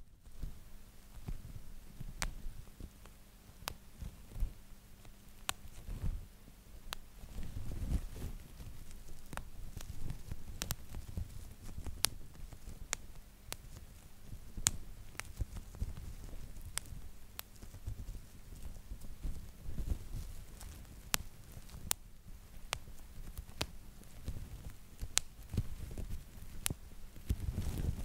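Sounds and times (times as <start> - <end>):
bubble wrap popping: 6.9 - 28.0
plastic sheet rustling: 27.2 - 28.0.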